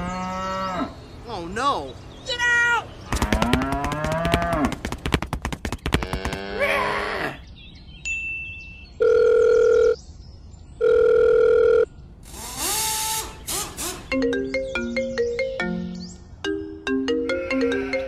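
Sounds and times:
marimba-like ringtone melody: 14.0 - 18.0.

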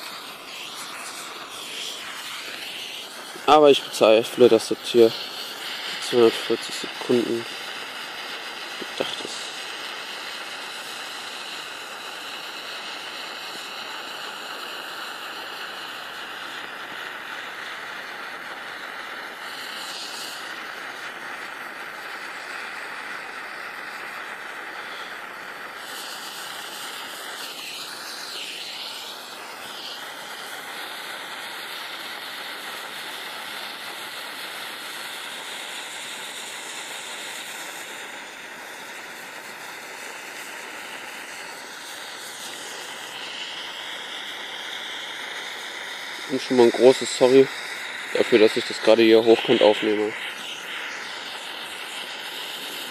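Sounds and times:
fire-lighter flame hissing: 0.0 - 52.9.

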